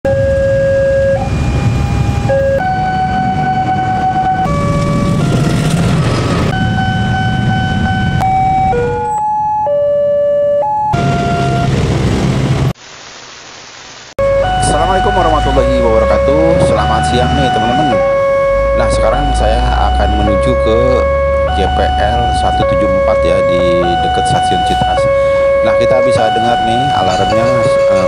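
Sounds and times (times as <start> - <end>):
level crossing alarm tone: 0.1 - 11.8, 14.2 - 28.0
rumbling train and traffic: 0.1 - 12.8, 14.4 - 28.0.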